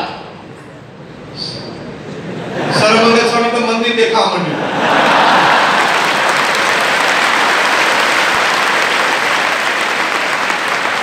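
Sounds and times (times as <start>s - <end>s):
audience applause: 4.8s - 11.0s.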